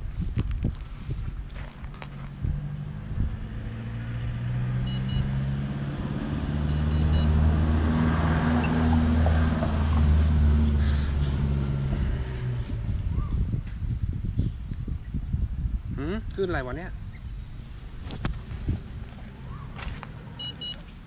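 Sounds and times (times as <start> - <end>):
low motor hum: 1.3 - 14.3
short high electronic beeps: 4.9 - 5.3.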